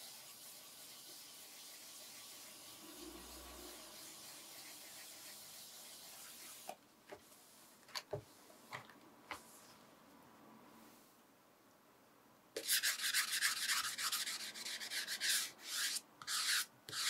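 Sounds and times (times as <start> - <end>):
sandpaper rubbing on lacquer: 3.7 - 6.7, 12.6 - 17.0.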